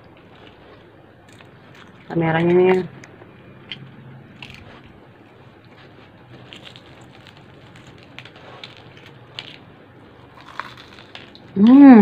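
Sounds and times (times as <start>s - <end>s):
fried chicken crust crackling: 6.3s - 11.7s.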